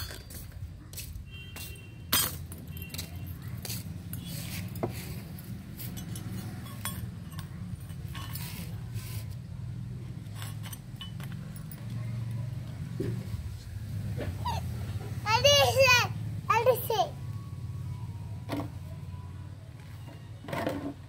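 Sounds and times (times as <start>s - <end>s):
steel spoons clinking: 5.8s - 8.8s, 10.3s - 11.7s.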